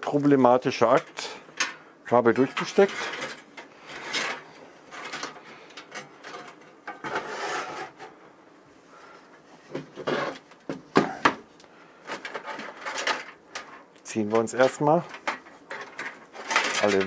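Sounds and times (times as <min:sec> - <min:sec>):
cables scraping sheet metal: 0:02.1 - 0:08.1, 0:12.0 - 0:17.0.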